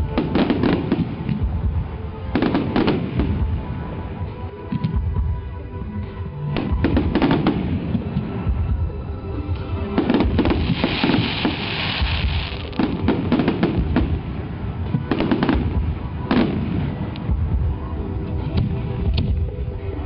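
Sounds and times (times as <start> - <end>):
fireworks bangs: 0.0 - 3.9, 6.5 - 8.6, 9.6 - 19.5
fireworks crackling: 0.0 - 20.0.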